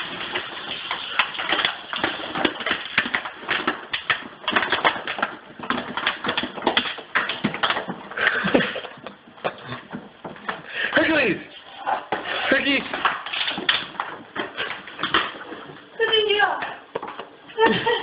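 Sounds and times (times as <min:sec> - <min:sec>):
plastic bag crackling: 0:00.0 - 0:08.8.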